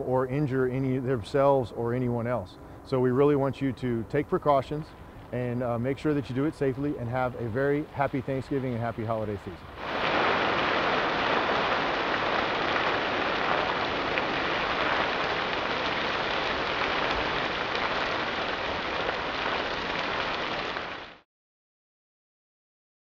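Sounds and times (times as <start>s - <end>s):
burning oil crackling and spattering: 9.7s - 21.2s.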